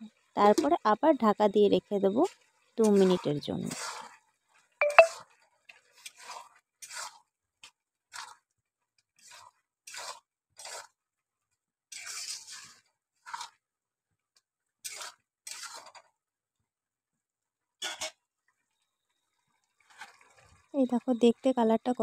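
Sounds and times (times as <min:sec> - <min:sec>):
metal spatula scraping a pan: 0:02.8 - 0:04.2, 0:06.0 - 0:07.2, 0:09.2 - 0:11.0, 0:11.9 - 0:13.6, 0:14.9 - 0:16.1, 0:17.8 - 0:18.2.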